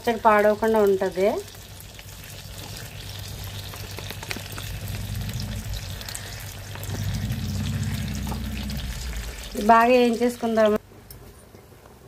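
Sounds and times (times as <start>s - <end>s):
prawns sizzling in oil: 0.0s - 10.8s
low hum: 2.7s - 10.4s.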